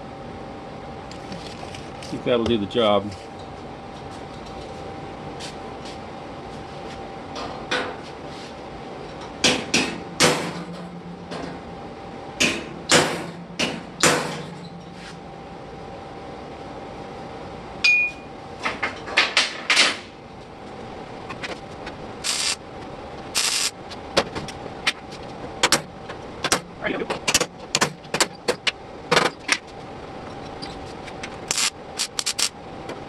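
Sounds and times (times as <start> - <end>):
hammer striking metal spike: 12.4 - 14.4.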